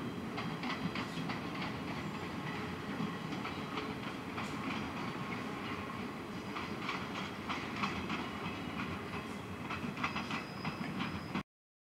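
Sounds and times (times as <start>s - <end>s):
train rumble: 0.0s - 11.4s
train wheels clicking over rail joints: 0.0s - 11.4s
faint high squeal: 9.4s - 11.4s.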